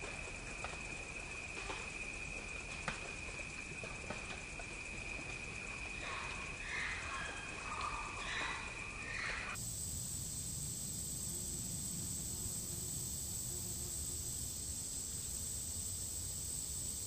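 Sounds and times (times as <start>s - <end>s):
insect drone: 0.0s - 17.0s
high steady whine with hiss: 7.6s - 17.0s.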